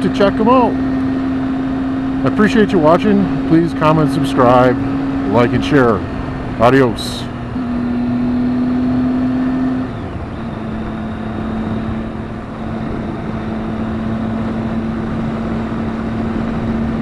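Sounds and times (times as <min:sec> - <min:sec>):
motorcycle engine cruising: 0:00.0 - 0:17.0
road noise: 0:00.0 - 0:17.0
wind noise: 0:09.8 - 0:17.0.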